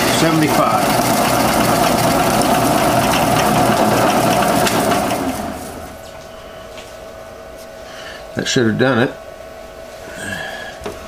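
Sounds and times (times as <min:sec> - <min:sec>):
metal cutting noise: 0:00.0 - 0:06.1
milling spindle whine: 0:00.0 - 0:06.5.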